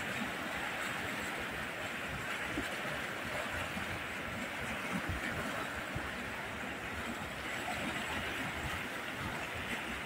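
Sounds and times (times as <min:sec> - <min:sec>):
floodwater rushing: 0:00.0 - 0:10.0.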